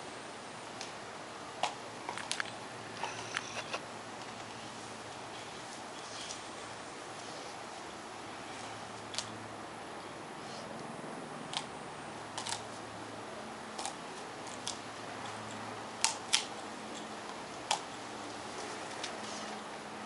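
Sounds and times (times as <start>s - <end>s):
dog chewing a stick: 12.3s - 12.8s, 13.7s - 19.6s.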